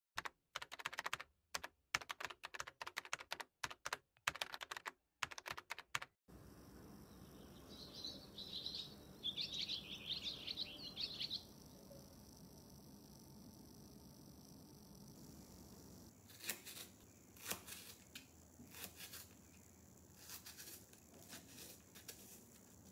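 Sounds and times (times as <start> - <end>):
small birds chirping: 6.4 - 16.2.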